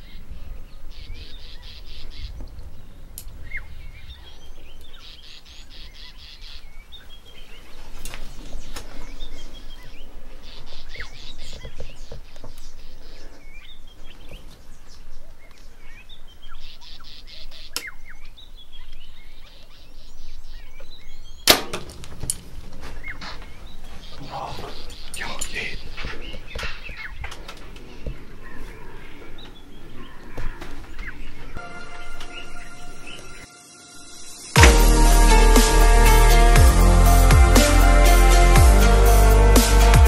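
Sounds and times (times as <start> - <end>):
birds chirping: 0.0 - 40.0
high rattling trill: 33.5 - 40.0.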